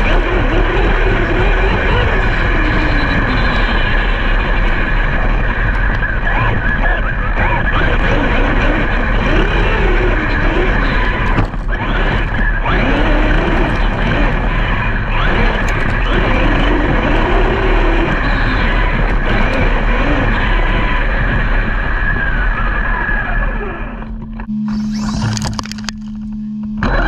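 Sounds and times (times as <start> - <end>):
steady rush of noise: 0.0 - 27.0
electric motor whine: 7.4 - 27.0.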